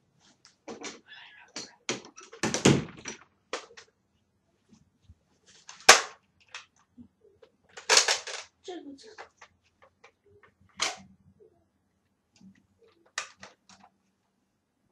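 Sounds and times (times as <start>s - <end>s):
plastic clicks and clacks: 5.7s - 8.5s, 9.1s - 11.1s, 12.4s - 14.0s.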